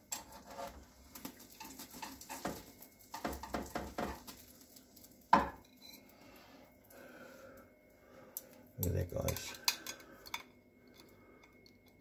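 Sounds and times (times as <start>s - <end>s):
metal spatula scraping frying pan: 0.0s - 0.9s.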